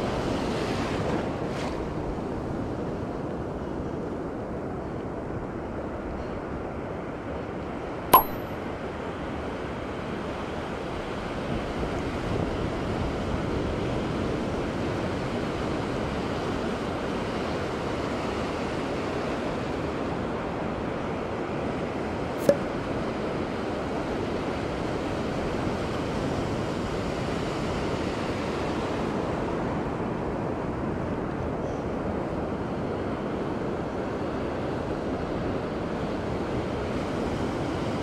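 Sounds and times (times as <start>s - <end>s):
waves washing on beach: 0.0s - 5.9s
sharp click: 8.2s - 8.5s, 22.4s - 22.7s.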